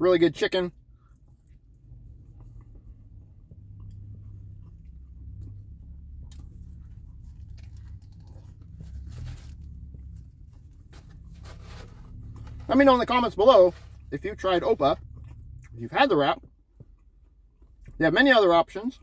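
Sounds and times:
low steady hum: 0.0 - 19.0
person chewing food: 0.8 - 12.7, 14.9 - 15.8, 16.4 - 18.0.

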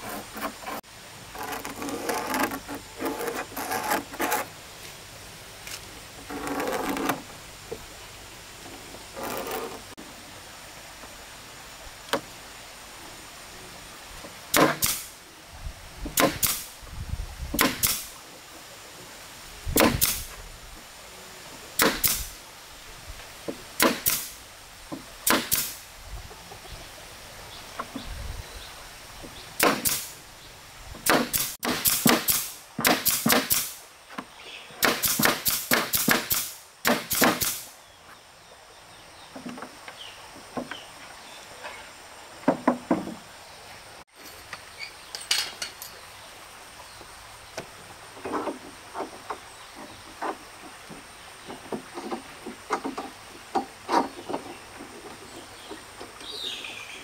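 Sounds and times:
tool striking wood: 14.5 - 15.1, 16.2 - 16.7, 17.6 - 18.1, 19.8 - 20.3, 21.8 - 22.3, 23.8 - 24.3, 25.2 - 25.8, 29.6 - 30.1, 31.0 - 33.8, 34.8 - 37.6.

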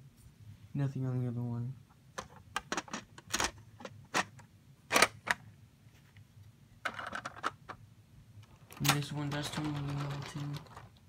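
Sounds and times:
plastic toy bricks clicking: 8.4 - 11.0.

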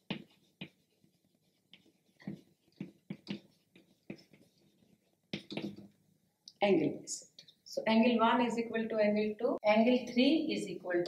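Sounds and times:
chalk writing on chalkboard: 0.0 - 5.9.

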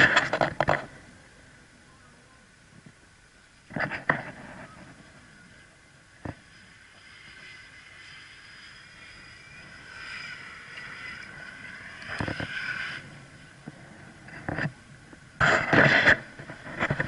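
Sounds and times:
sharp thumps: 6.2 - 17.0.

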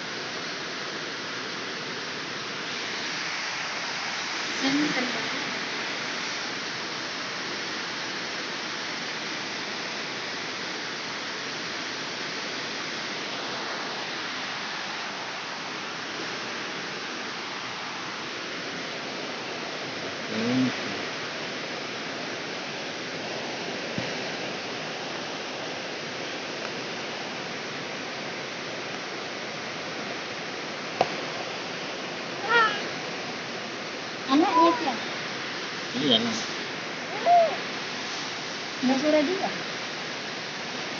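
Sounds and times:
steady rushing hiss: 0.0 - 40.9
brief pitched cries: 32.4 - 32.9.

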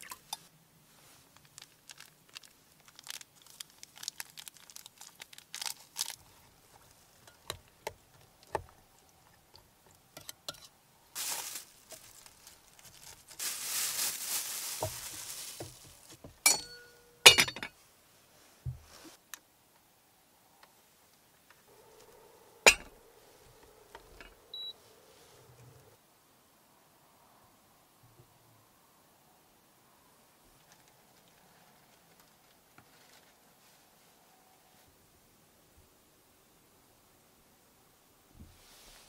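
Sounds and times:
plastic crinkling: 1.2 - 7.8, 11.2 - 16.4
sharp ringing clinks: 16.5 - 17.7.

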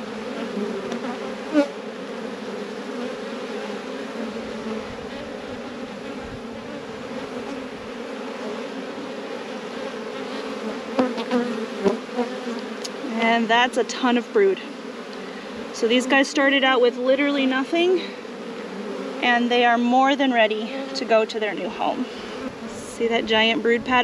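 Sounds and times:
honeybees buzzing: 0.0 - 24.0.

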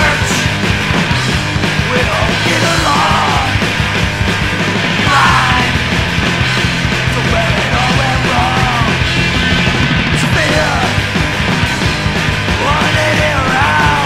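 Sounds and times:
shouted vocals: 0.0 - 0.5, 1.8 - 3.7, 5.0 - 5.9, 7.1 - 9.1, 12.6 - 14.0
punk rock band playing: 0.0 - 14.0.

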